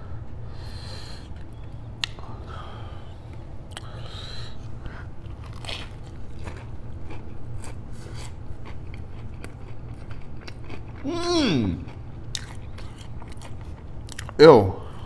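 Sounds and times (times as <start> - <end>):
crunchy open-mouthed chewing: 3.3 - 15.0
biting into sandwich: 5.2 - 14.4.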